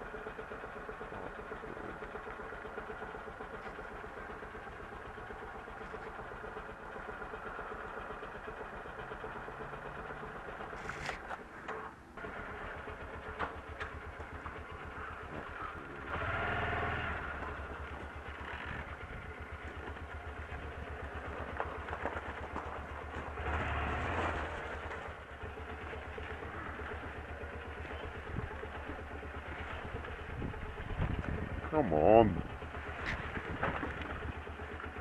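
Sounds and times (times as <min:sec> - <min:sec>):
motorcycle engine revving: 0:00.1 - 0:35.0.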